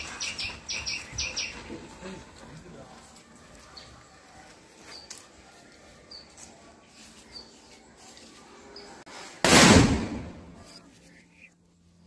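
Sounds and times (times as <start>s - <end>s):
birds chirping faintly: 0.0s - 9.1s
firecracker bang: 9.4s - 10.6s.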